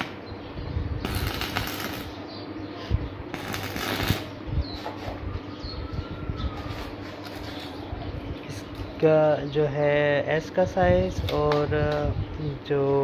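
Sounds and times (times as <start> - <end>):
steady hum: 0.0 - 13.0
welding arc crackling: 1.0 - 2.2, 3.3 - 4.4.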